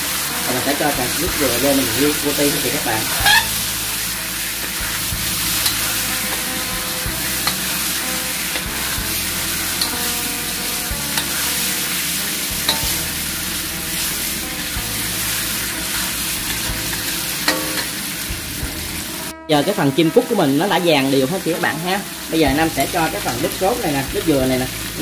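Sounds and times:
spatula stirring in wok: 0.0s - 19.3s
birds sizzling in hot oil: 0.0s - 25.0s.

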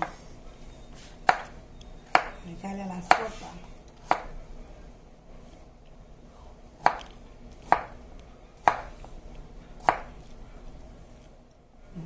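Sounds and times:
knife chopping carrot on board: 1.2s - 2.4s, 3.1s - 3.4s, 4.0s - 4.4s, 6.8s - 8.0s, 8.6s - 9.0s, 9.8s - 10.2s.

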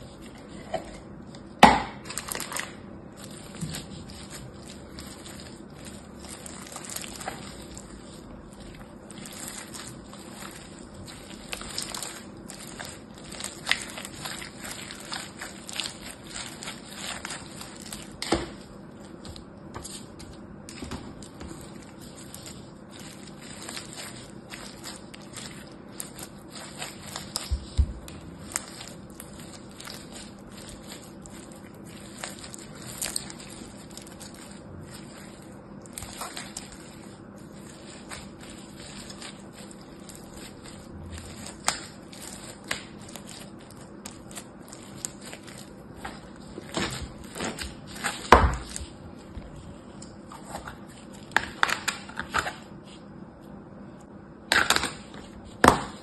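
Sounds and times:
foam bead slime crackling: 1.4s - 52.7s.

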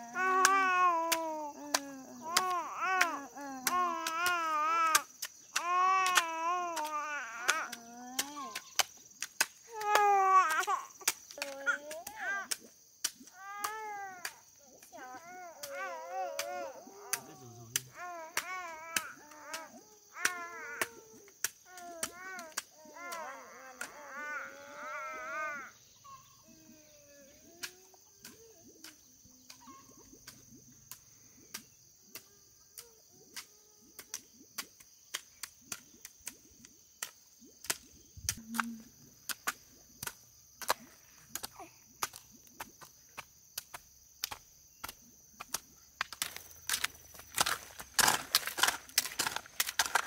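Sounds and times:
wavering crying-like voice: 0.0s - 5.0s, 13.3s - 25.8s.

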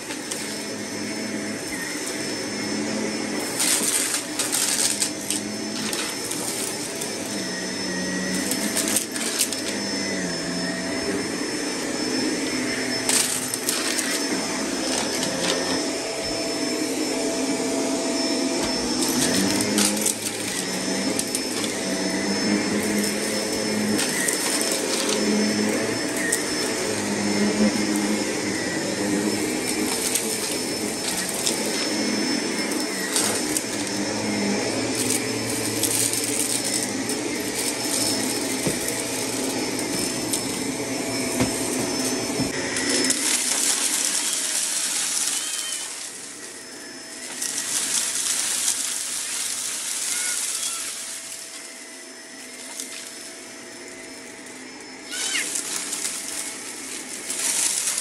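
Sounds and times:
vacuum cleaner running: 0.0s - 58.0s
grit crackling in vacuum: 18.2s - 46.6s.

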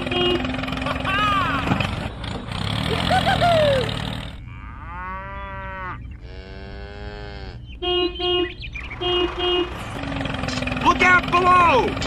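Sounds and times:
horn beeping: 0.0s - 0.8s, 7.8s - 11.3s
cow mooing: 4.4s - 7.6s.

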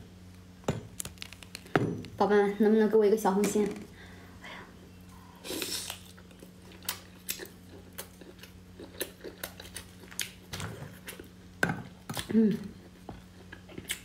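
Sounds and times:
mouth biting and chewing: 5.6s - 11.4s.

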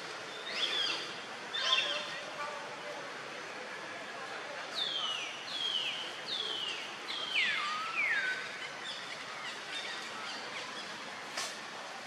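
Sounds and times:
steady outdoor hiss: 0.0s - 12.0s.

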